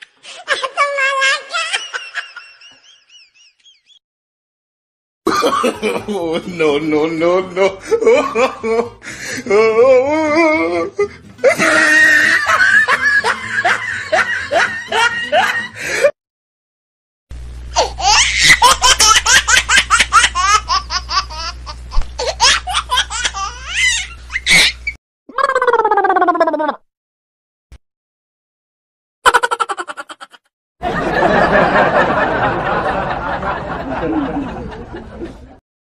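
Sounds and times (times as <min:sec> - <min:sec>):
hearty laughter: 0:01.5 - 0:04.0, 0:05.3 - 0:09.5, 0:10.7 - 0:16.1, 0:29.4 - 0:35.6
steady low hum: 0:17.3 - 0:24.9.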